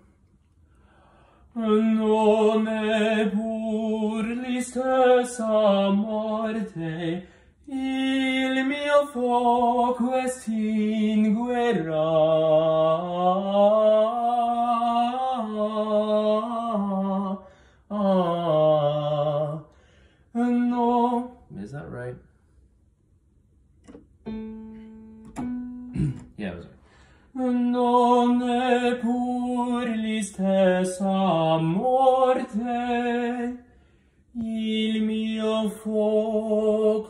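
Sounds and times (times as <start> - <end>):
man singing opera unaccompanied: 1.5 - 21.6, 27.3 - 33.7, 34.3 - 37.0.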